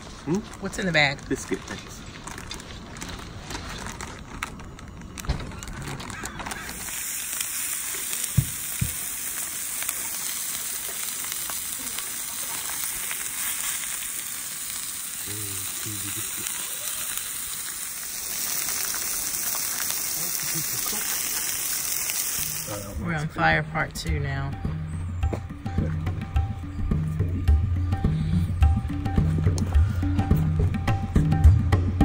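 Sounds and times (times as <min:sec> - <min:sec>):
sausage sizzling on griddle: 0:00.0 - 0:23.6.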